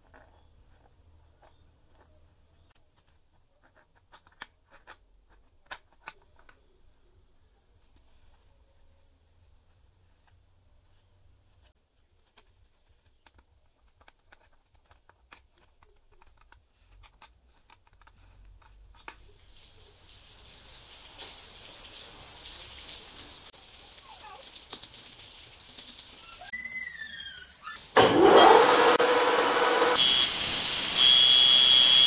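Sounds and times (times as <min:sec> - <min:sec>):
small metal parts clicking: 0:00.0 - 0:06.6, 0:12.3 - 0:19.4.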